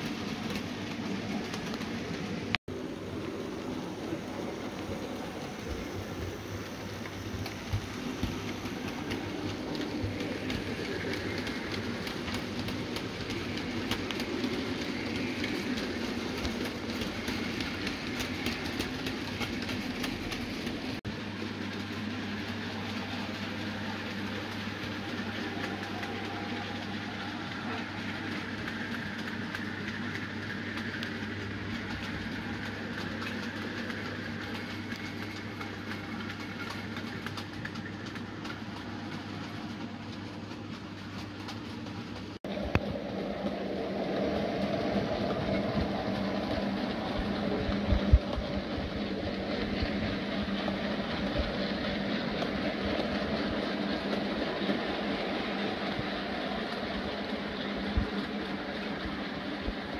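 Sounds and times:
model train rolling rumble: 0.0s - 59.9s
steady low hum: 0.0s - 59.9s
wheels clicking over rail joints: 0.0s - 59.9s.

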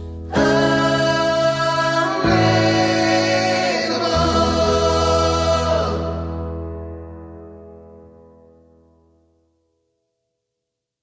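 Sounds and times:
choir-like held chords: 0.2s - 6.7s.

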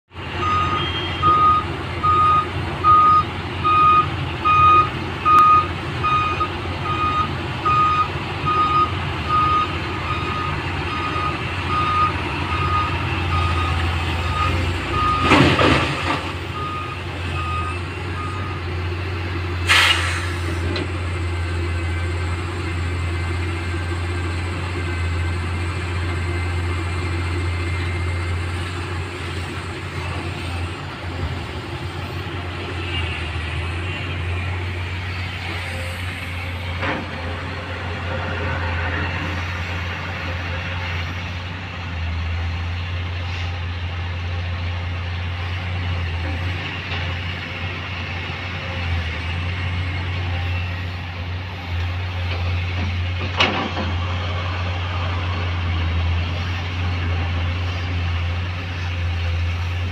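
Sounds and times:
diesel engine rumble: 0.1s - 59.9s
truck reversing alarm beeping: 0.2s - 31.2s
air brake hisses: 19.6s - 20.8s.

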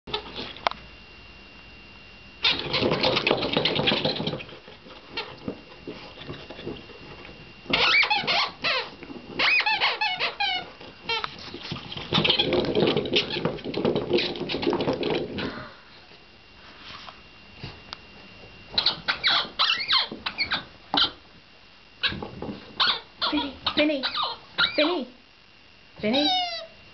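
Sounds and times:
squeaky toy squeaking: 7.7s - 11.2s, 18.8s - 20.6s, 22.8s - 24.9s.

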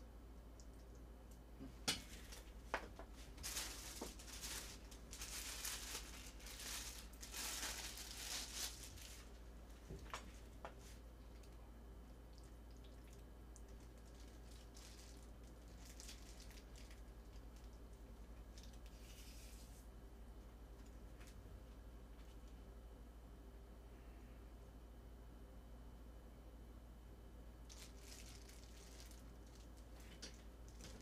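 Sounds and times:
low electrical hum: 0.0s - 31.0s
plastic glove crinkling: 2.1s - 11.4s, 13.6s - 19.9s, 27.6s - 31.0s.

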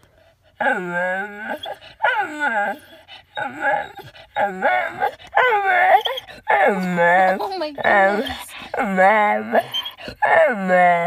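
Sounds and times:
dog whining: 0.6s - 11.0s.

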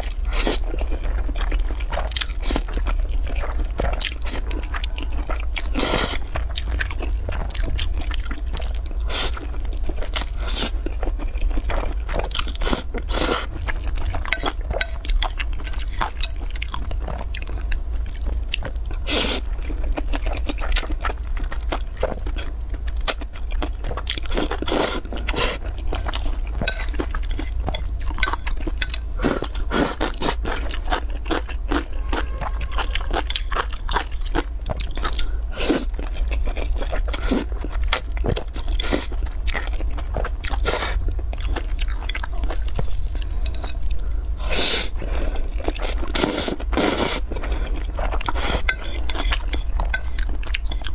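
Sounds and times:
noodles slurped and chewed: 0.0s - 50.9s
steady low hum: 0.0s - 50.9s
chopsticks scraping bowl: 24.7s - 30.1s, 48.2s - 50.9s.

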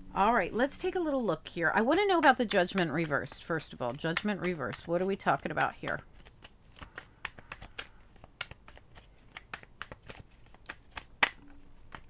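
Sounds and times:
cards being shuffled: 2.3s - 12.0s
card snap: 6.2s - 12.0s.

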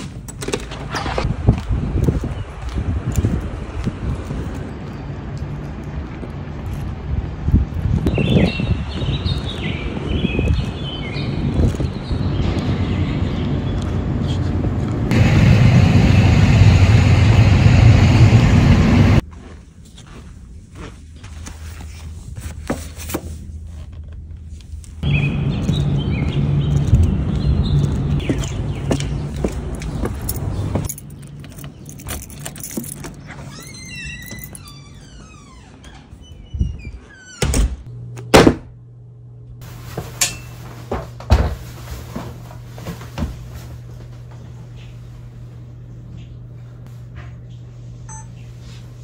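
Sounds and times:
loud outdoor rumble: 0.0s - 19.3s, 25.0s - 33.3s
steady low hum: 11.3s - 22.6s, 37.8s - 49.0s
faint hum: 37.9s - 49.0s.

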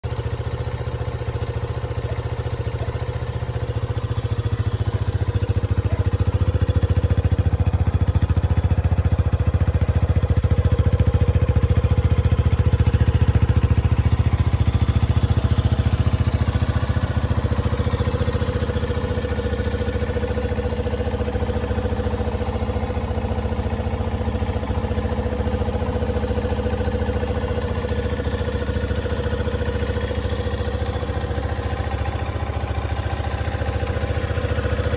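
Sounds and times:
motorcycle engine idling: 0.0s - 34.9s.

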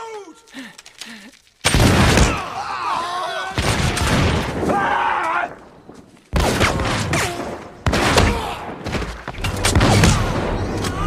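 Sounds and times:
musket shots: 1.6s - 2.6s, 3.5s - 11.0s.

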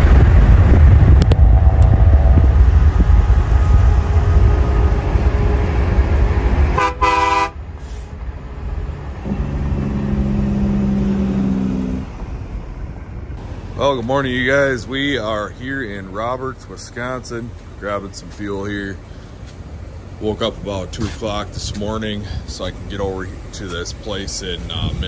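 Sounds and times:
truck passing with low rumble: 0.0s - 25.0s
low steady tone: 0.5s - 6.8s
air horn blast: 1.3s - 8.1s.

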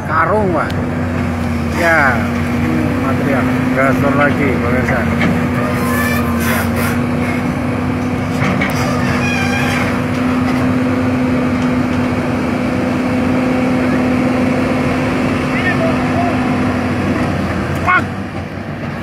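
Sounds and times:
excavator diesel engine running: 0.0s - 19.0s
short scrapes and clicks: 5.7s - 7.4s.

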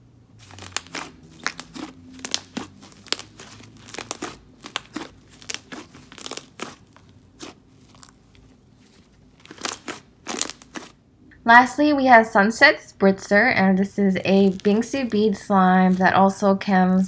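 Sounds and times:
slime squishing with sticky crackles: 0.4s - 11.0s, 14.2s - 17.0s.

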